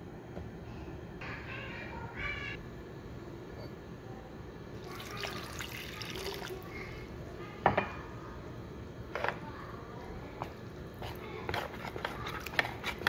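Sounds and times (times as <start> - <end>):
spoon scraping plastic bowl: 11.0 - 13.0.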